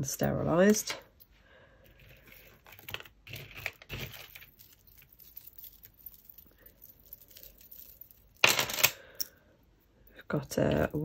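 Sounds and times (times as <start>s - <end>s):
jewellery clinking in a box: 2.0s - 9.3s.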